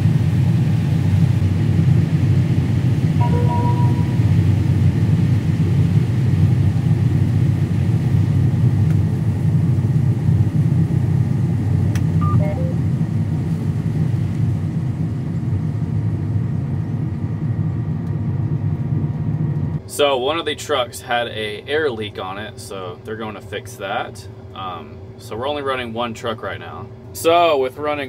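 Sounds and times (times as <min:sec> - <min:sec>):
combine harvester rumbling: 0:00.1 - 0:05.8
short tones: 0:03.2 - 0:04.4, 0:12.2 - 0:12.8.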